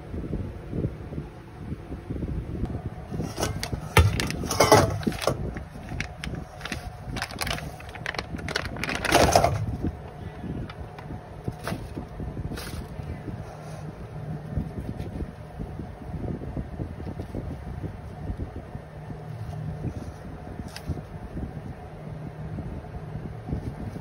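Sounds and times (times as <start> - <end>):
plastic bag crinkling: 3.3 - 12.0.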